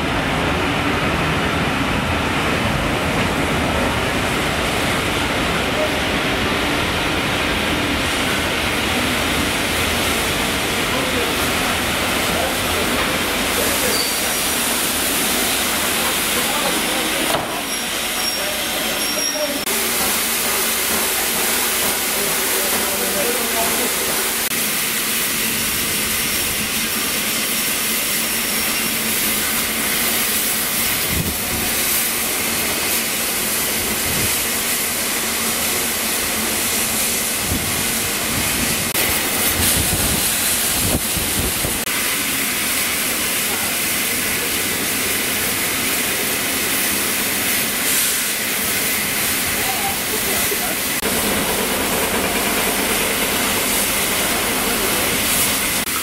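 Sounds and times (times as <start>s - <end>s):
steam hissing from safety valves: 4.3s - 56.0s.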